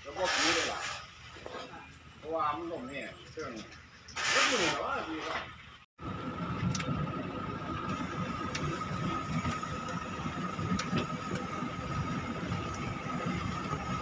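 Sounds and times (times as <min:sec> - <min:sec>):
excavator engine rumbling: 0:06.0 - 0:14.0.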